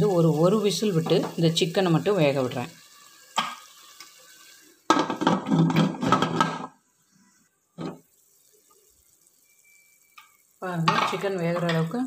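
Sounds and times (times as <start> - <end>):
pressure cooker whistle hissing: 9.0 - 10.9.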